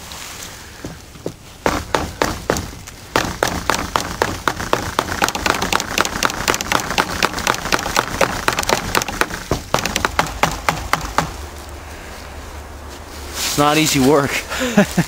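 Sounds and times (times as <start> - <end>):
stone axe chopping wood: 1.7 - 11.4.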